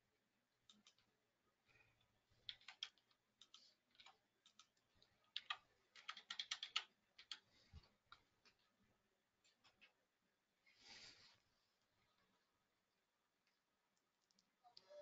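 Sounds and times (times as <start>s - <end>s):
typing on computer keyboard: 0.7s - 1.1s, 2.4s - 7.4s.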